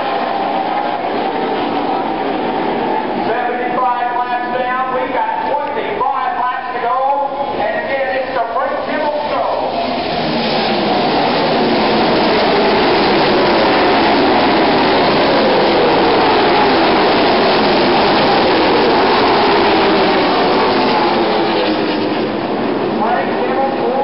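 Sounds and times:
racing car engines droning: 0.0s - 24.0s.

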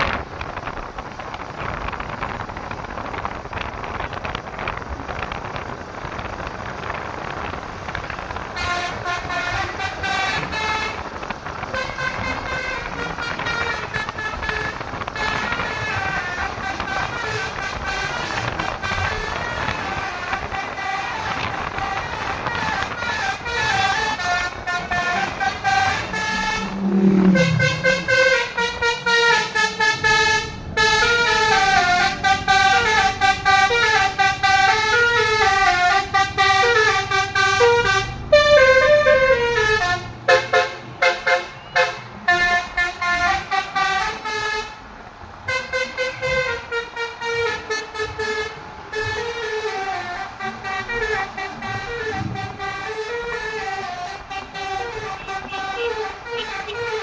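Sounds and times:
horn playing a melody: 21.9s - 44.7s, 45.5s - 57.0s.

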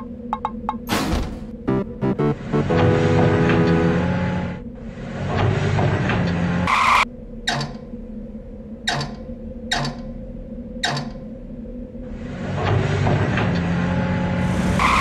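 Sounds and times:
background music: 1.6s - 4.6s
short bright tone: 1.7s - 4.2s
mechanical clanks with creaking: 7.4s - 7.9s, 8.8s - 10.2s, 10.8s - 11.3s, 12.4s - 14.0s.

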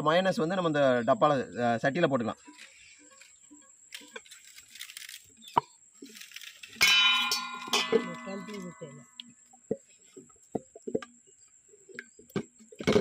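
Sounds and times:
metal pot clanging: 6.8s - 8.9s.

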